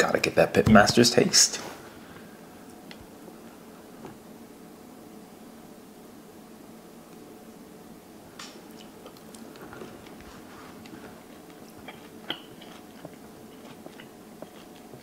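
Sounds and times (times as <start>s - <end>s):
steady low hum: 0.0s - 15.0s
man chewing food: 8.7s - 15.0s
wet mouth clicks: 11.8s - 14.8s.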